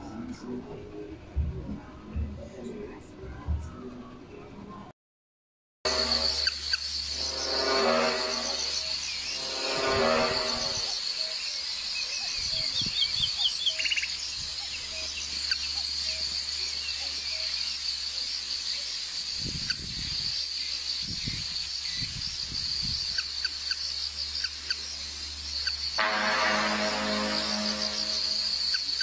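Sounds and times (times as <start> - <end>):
low thumps: 1.3 - 2.4
insect drone: 5.9 - 29.0
birds chirping: 10.9 - 17.8.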